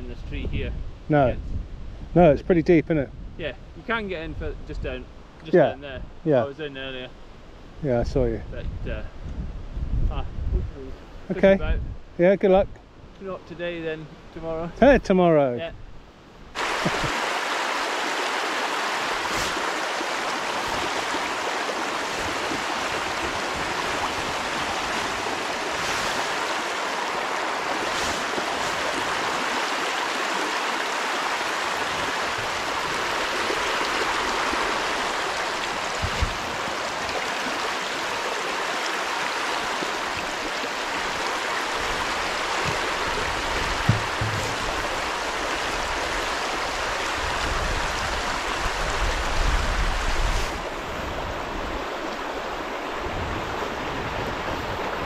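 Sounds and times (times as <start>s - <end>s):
river rushing over stones: 16.6s - 55.0s
soft knocks: 43.7s - 44.8s.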